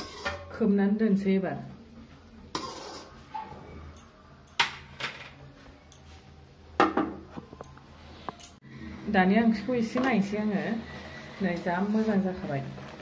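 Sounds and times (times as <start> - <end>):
metal spatula scraping a wok: 0.0 - 0.5, 2.5 - 3.3.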